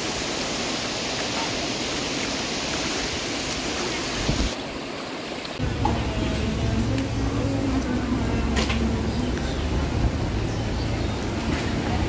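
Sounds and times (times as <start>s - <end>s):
small waves washing on beach: 0.0s - 5.8s
wind on microphone: 4.2s - 4.6s.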